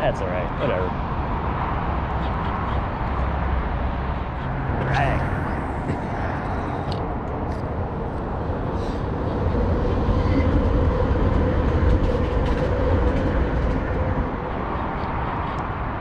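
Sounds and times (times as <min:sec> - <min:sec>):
road traffic: 0:00.0 - 0:16.0
train rumbling across bridge: 0:07.8 - 0:15.9.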